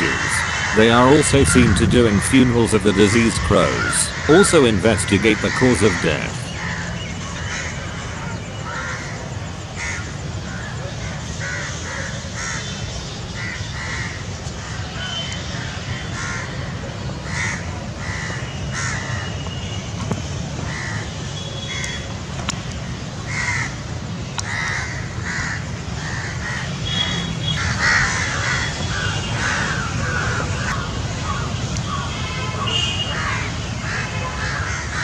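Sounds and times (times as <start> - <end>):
crows cawing: 0.0 - 19.4, 20.7 - 22.1, 23.2 - 23.8, 24.4 - 35.0.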